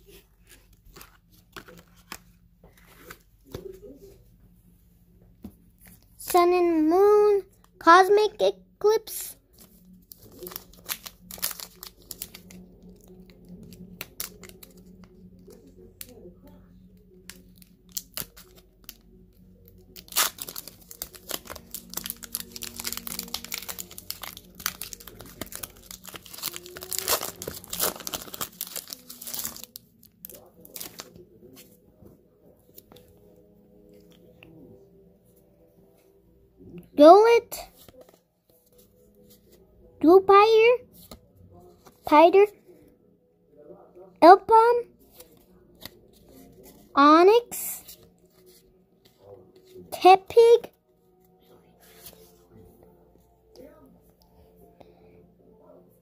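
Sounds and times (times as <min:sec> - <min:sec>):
foil wrapper tearing and crinkling: 0:10.2 - 0:14.9, 0:19.9 - 0:31.2.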